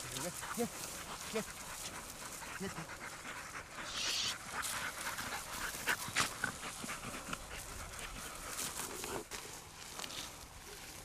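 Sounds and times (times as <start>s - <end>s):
dog panting: 0.0s - 9.4s
footsteps in dry grass: 0.0s - 11.0s.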